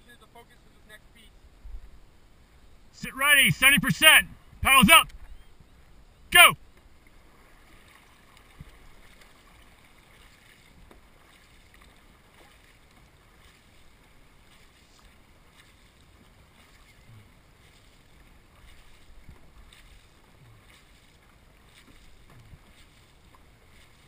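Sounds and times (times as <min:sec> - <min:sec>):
water running along hull: 0:05.8 - 0:24.0
paddles splashing: 0:06.4 - 0:24.0.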